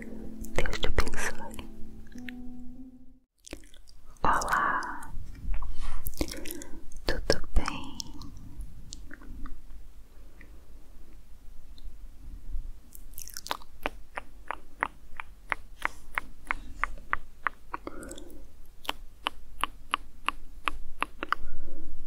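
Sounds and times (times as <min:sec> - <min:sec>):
soft rustle: 0:05.2 - 0:06.2.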